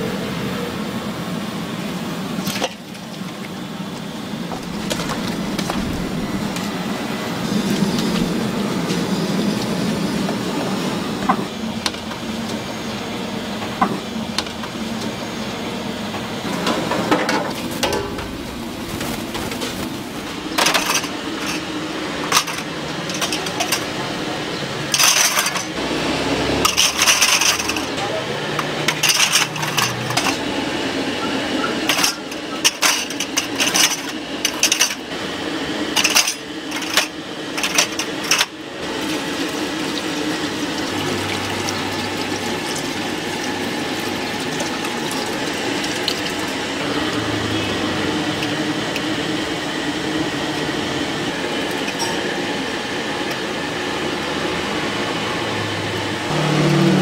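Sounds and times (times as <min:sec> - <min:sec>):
steady background noise: 0:00.0 - 0:57.0
metal cups clinking: 0:20.5 - 0:24.1, 0:24.9 - 0:25.8, 0:26.6 - 0:28.0, 0:28.6 - 0:30.5, 0:31.6 - 0:35.0, 0:36.0 - 0:38.6, 0:51.6 - 0:52.3.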